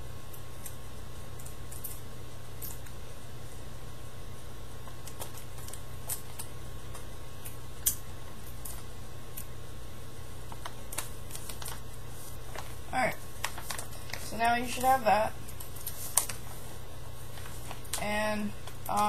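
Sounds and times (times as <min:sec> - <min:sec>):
steady low hum: 0:00.0 - 0:19.0
paper and tape rustling: 0:10.5 - 0:19.0.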